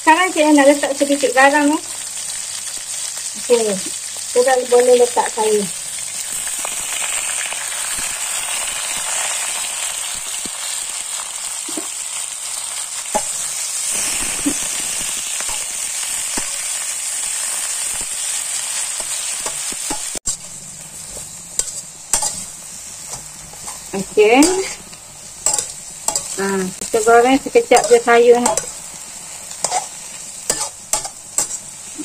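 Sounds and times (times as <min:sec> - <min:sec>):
oil sizzling in a wok: 0:00.0 - 0:32.0
metal utensil scraping a wok: 0:12.5 - 0:32.0.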